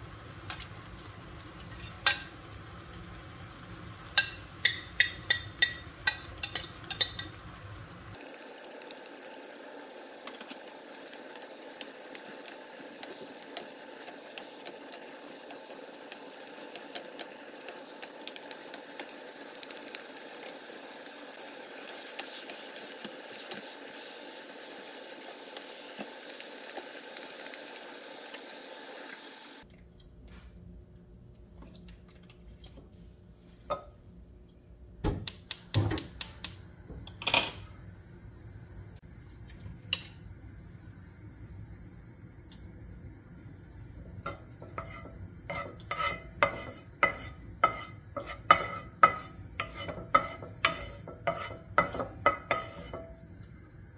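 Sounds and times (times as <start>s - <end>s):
food sizzling in a frying pan: 0.0s - 29.7s, 35.4s - 53.9s
cookware clattering: 37.2s - 37.6s, 44.3s - 53.2s
wooden spatula scraping a pan: 44.3s - 53.1s.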